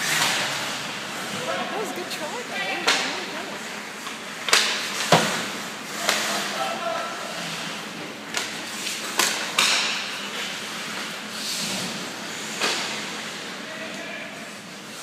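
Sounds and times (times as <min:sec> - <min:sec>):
hockey stick and puck knocks: 0:08.4 - 0:10.4.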